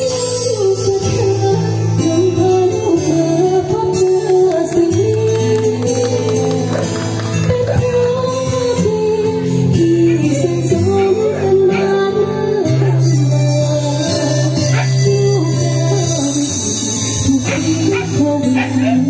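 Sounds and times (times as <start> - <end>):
instrumental backing music: 0.0 - 19.0
woman singing into microphone: 0.0 - 19.0.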